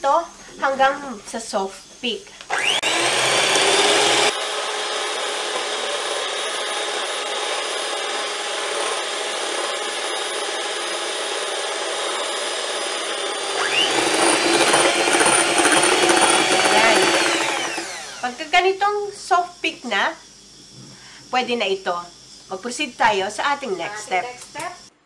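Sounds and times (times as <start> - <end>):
electric hand mixer whirring: 2.5 - 19.6.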